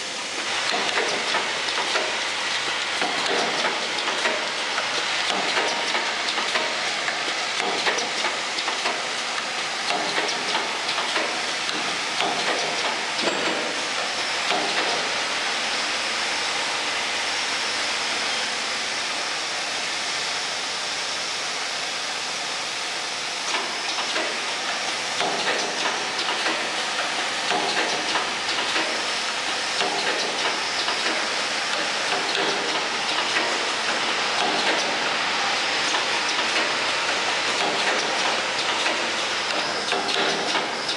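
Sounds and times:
machine parts rattling and clattering: 0:00.7 - 0:09.0, 0:09.9 - 0:13.8, 0:25.2 - 0:35.2, 0:35.9 - 0:40.9.

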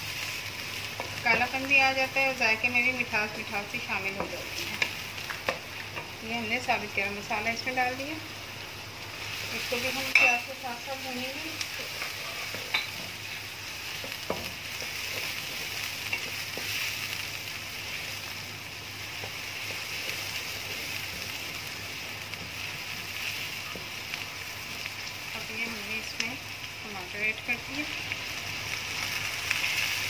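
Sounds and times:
onions sizzling in hot oil: 0:00.0 - 0:30.0.

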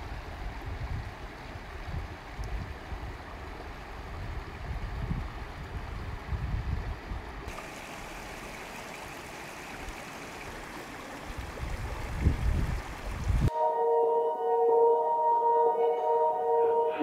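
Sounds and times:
wind rumble on microphone: 0:00.0 - 0:07.5, 0:10.7 - 0:13.5
creek rushing over rocks: 0:07.4 - 0:13.5.

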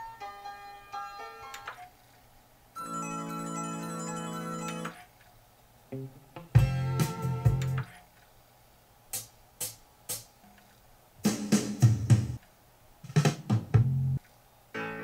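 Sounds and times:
music with drums from speakers: 0:06.5 - 0:07.8, 0:11.2 - 0:12.4, 0:13.0 - 0:14.1.

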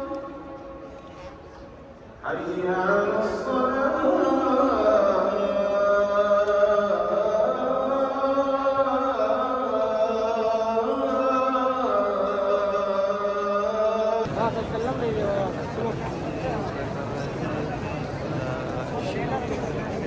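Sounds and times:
person chanting: 0:02.2 - 0:14.4.

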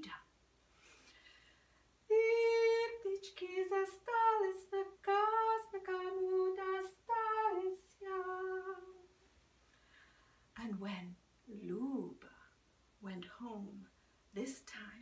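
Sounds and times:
woman singing in a high voice: 0:02.1 - 0:09.2, 0:14.4 - 0:15.0.

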